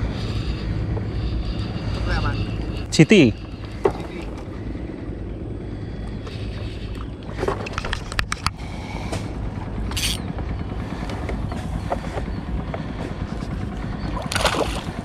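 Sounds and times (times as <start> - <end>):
steady low rumble: 0.0 - 15.0
spinning reel being cranked: 9.9 - 10.2.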